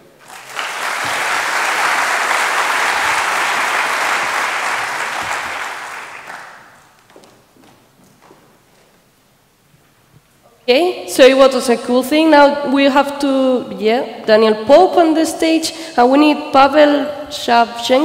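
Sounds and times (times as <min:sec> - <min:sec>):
audience applauding: 0:00.2 - 0:06.9.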